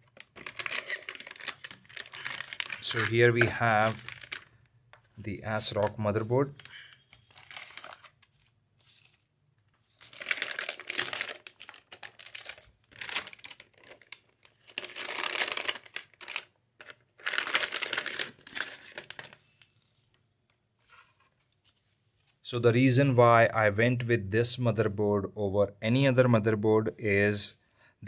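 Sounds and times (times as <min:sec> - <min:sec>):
plastic bag crinkling: 0:00.0 - 0:04.6, 0:06.5 - 0:09.1, 0:09.9 - 0:19.5.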